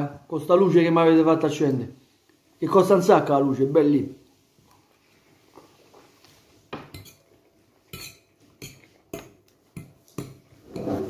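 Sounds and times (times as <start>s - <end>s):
metal fork clinking against bowl: 6.9s - 7.3s, 7.9s - 10.9s.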